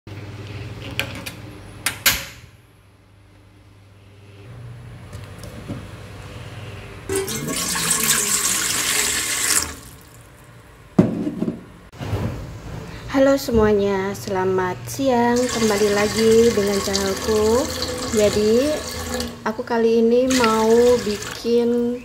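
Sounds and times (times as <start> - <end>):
water pouring into metal pot: 7.1 - 10.2, 15.4 - 19.4.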